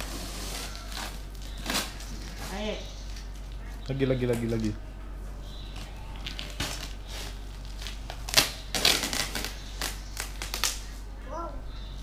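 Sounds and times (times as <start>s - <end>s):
packaging crinkling and tearing: 0.0s - 2.5s, 5.8s - 10.9s.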